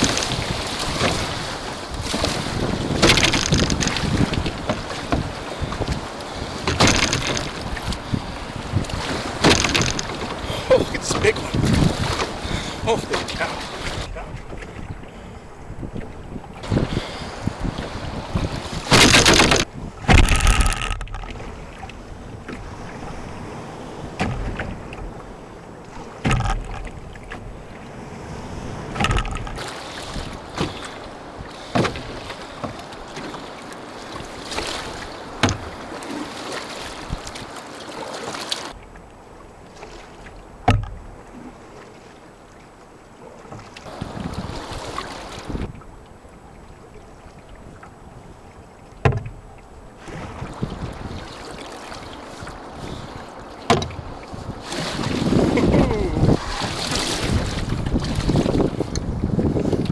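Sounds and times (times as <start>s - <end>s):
heavy splashes: 0.0s - 14.4s, 53.9s - 58.6s
paddle strokes: 0.0s - 59.9s
water slapping against canoe hull: 0.0s - 59.9s
waves: 0.0s - 59.9s
wind: 0.0s - 59.9s.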